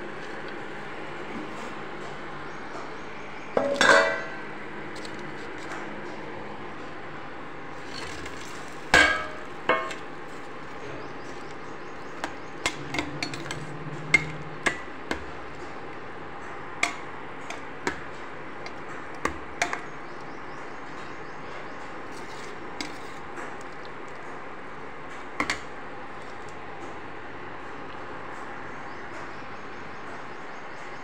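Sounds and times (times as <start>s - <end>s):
ringing metal clangs: 3.6s - 4.4s, 9.0s - 10.0s.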